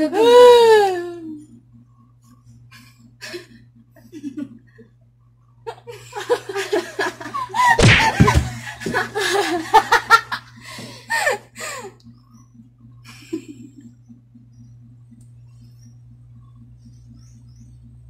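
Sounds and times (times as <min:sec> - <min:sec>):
young women laughing and giggling: 0:05.7 - 0:11.5
dull thumps: 0:07.8 - 0:09.1.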